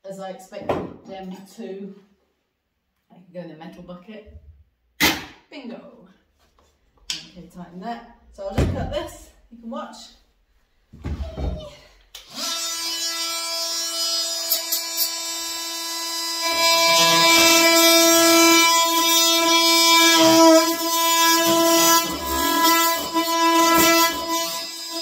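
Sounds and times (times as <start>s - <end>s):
blade cutting wood: 12.2s - 25.0s
oscillating multi-tool buzzing: 12.2s - 25.0s.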